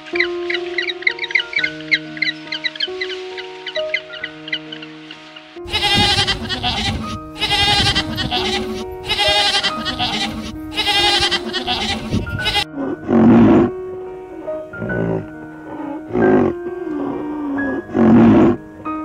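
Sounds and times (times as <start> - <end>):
background music: 0.0 - 19.0
goats bleating: 5.7 - 12.7
low-pitched animal call: 5.7 - 13.7, 14.8 - 18.6.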